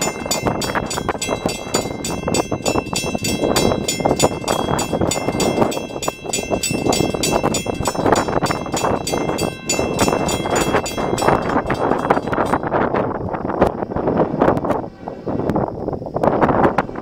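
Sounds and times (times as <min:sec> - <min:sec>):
crossing signal bell ringing: 0:00.0 - 0:13.1
wind on microphone: 0:00.0 - 0:17.0.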